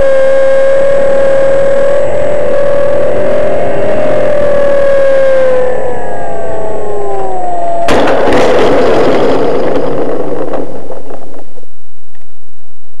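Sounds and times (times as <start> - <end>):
electric motor and propeller whining: 0.0 - 10.4
scraping rattling rumble: 7.9 - 11.6
loud landing bang: 7.9 - 11.7.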